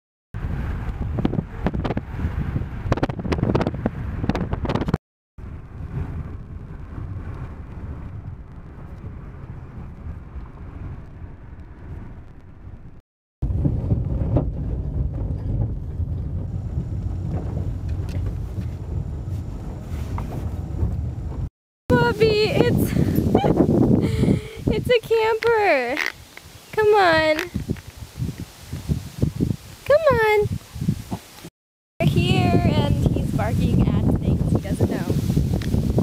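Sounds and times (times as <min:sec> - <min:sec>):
wind buffeting through car window: 0:00.4 - 0:26.1, 0:26.7 - 0:31.4, 0:32.0 - 0:36.0
tyres rumbling on dirt road: 0:00.4 - 0:27.8
road noise in car cabin: 0:14.0 - 0:21.5.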